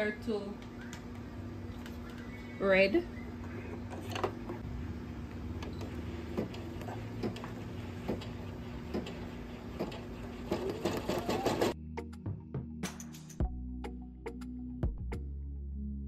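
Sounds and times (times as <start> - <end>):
embroidery machine humming: 0.0 - 11.8.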